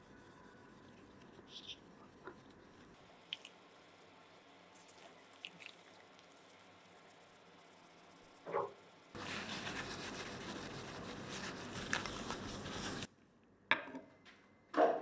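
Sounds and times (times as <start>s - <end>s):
cloth rubbing: 9.2s - 13.1s.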